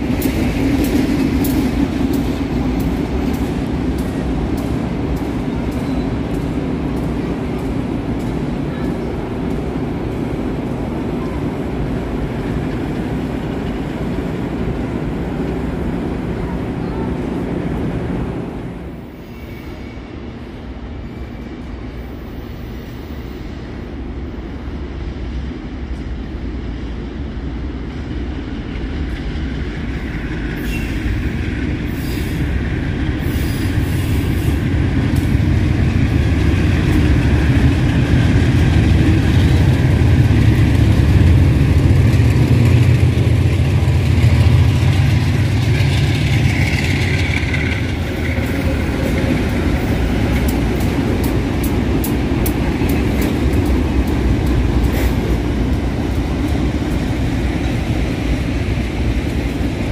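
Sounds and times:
diesel locomotive engines rumbling: 0:00.0 - 0:59.9
train wheel squeal: 0:05.6 - 0:06.3, 0:19.1 - 0:20.3, 0:30.0 - 0:32.6, 0:33.2 - 0:34.8.

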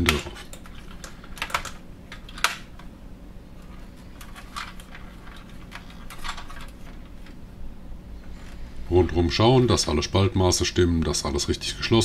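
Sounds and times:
plastic parts clicking and tapping: 0:00.0 - 0:02.9, 0:03.7 - 0:07.4.

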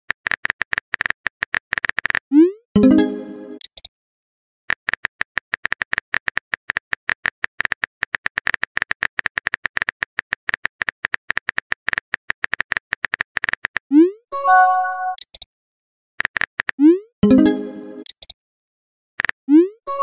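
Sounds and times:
keyboard typing clicks: 0:14.8 - 0:15.5, 0:16.2 - 0:18.4.

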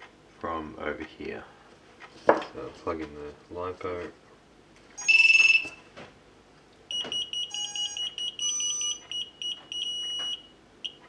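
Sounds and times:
electronic power-up beeps: 0:05.0 - 0:05.8.

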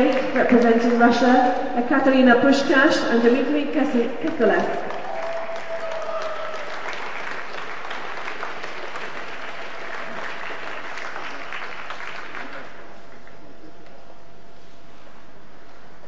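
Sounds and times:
crowd applauding: 0:04.3 - 0:13.4.

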